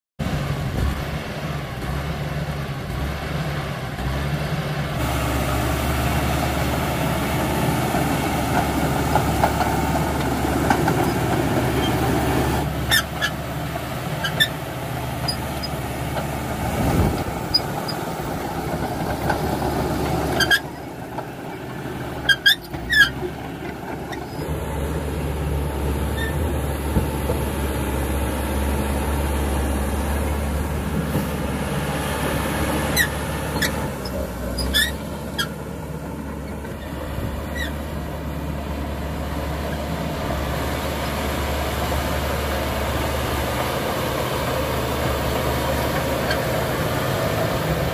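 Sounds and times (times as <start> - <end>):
bulldozer diesel engine running: 0.2 - 47.9
metallic squeaks and clanks of tracks: 7.7 - 24.6, 26.0 - 27.4, 32.9 - 37.9, 45.9 - 47.5.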